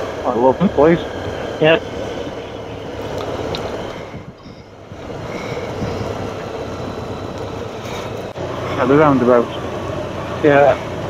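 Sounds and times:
wind noise: 0:00.0 - 0:08.8
motorcycle engine: 0:00.0 - 0:11.0.

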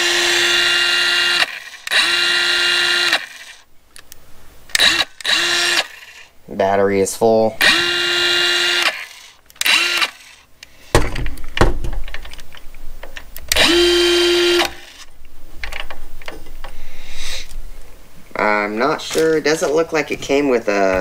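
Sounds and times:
circular saw motor whining: 0:00.0 - 0:03.6, 0:04.8 - 0:06.3, 0:07.6 - 0:10.4, 0:13.5 - 0:15.1
handling clicks and knocks: 0:11.0 - 0:13.6, 0:15.6 - 0:16.8.

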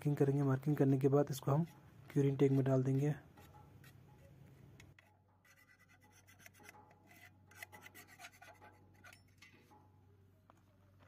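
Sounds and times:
scratchy rubbing: 0:00.8 - 0:09.4.

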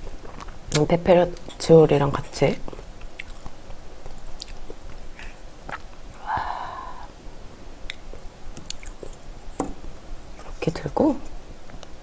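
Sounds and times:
wet mouth clicks: 0:07.9 - 0:09.2.

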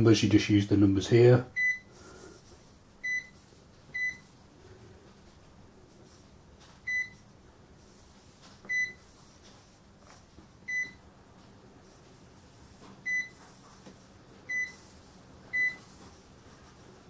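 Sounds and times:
cash register keypad beeps: 0:04.0 - 0:04.2, 0:06.9 - 0:07.2, 0:08.7 - 0:09.0, 0:13.1 - 0:13.3, 0:14.5 - 0:14.8, 0:15.5 - 0:15.8.

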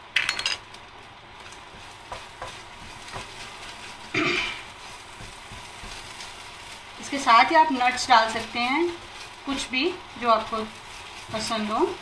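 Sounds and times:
oil sizzling: 0:00.0 - 0:12.0
spatula scraping a frying pan: 0:01.7 - 0:06.9.

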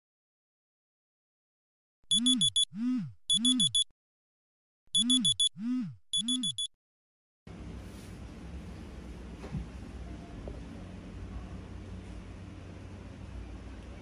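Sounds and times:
quick high beeps: 0:02.1 - 0:03.9, 0:04.9 - 0:06.7
smartphone alarm tune: 0:02.1 - 0:03.9, 0:04.9 - 0:06.7
low room hiss and hum: 0:07.5 - 0:14.0.

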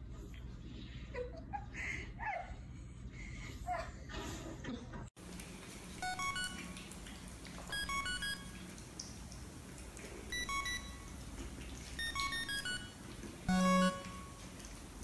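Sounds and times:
electronic beeping tune: 0:06.0 - 0:06.6, 0:07.7 - 0:08.5, 0:10.3 - 0:11.1, 0:12.0 - 0:14.4.

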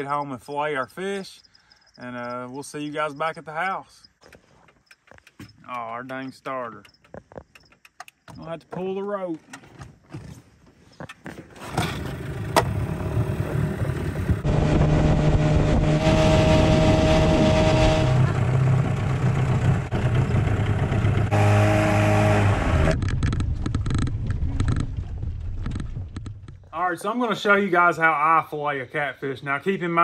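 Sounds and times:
outboard motor running: 0:11.6 - 0:23.0.

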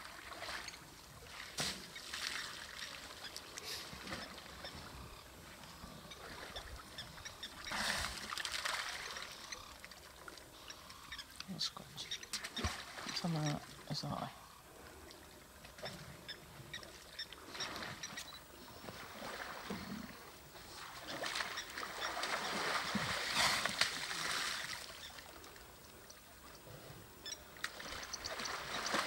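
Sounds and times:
elephant splashing water: 0:00.1 - 0:04.4, 0:07.7 - 0:09.4, 0:18.8 - 0:25.1, 0:27.6 - 0:29.0.

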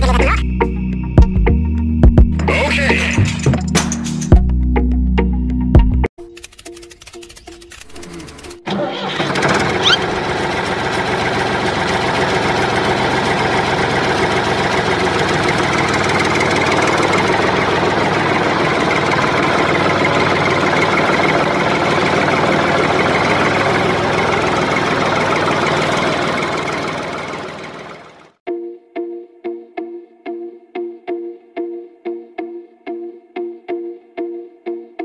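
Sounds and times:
tractor engine idling: 0:08.2 - 0:28.4.

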